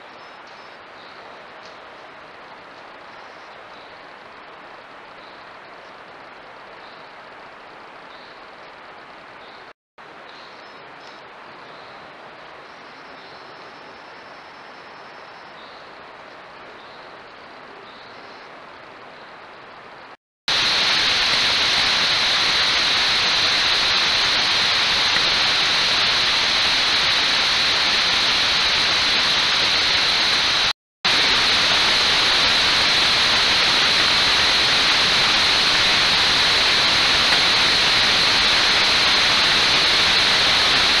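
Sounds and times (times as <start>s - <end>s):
loud static hiss: 20.5s - 41.0s.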